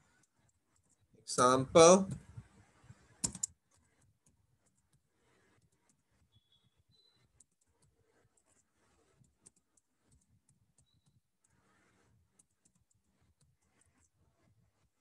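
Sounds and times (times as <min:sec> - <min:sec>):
computer keyboard typing: 0:03.2 - 0:05.0, 0:07.2 - 0:14.2.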